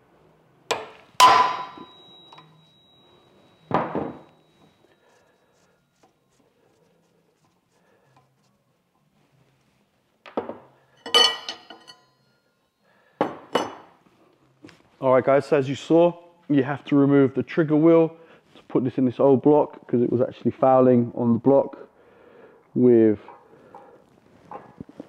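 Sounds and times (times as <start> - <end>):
high metallic ring: 1.2 - 5.2, 11.0 - 12.9
metal clanks and clinks: 11.0 - 12.4.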